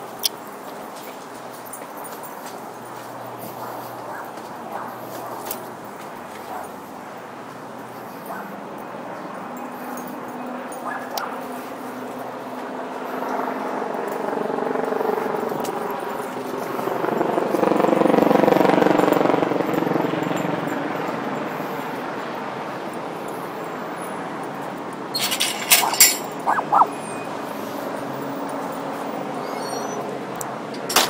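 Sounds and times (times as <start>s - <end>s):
background traffic: 0.0s - 31.0s
vehicle engine passing by: 25.2s - 30.3s.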